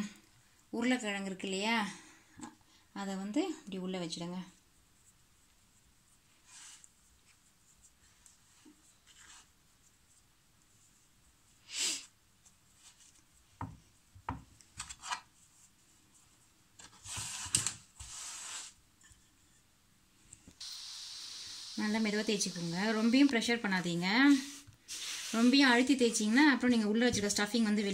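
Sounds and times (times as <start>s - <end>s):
hands rubbing dough: 4.1s - 19.7s, 21.9s - 27.9s.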